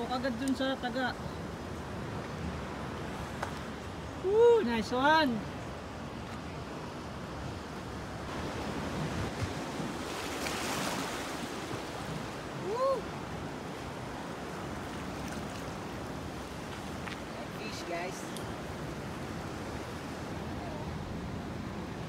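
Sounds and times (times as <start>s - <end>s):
sea waves washing on shore: 0.0s - 22.0s
wind on microphone: 1.2s - 22.0s.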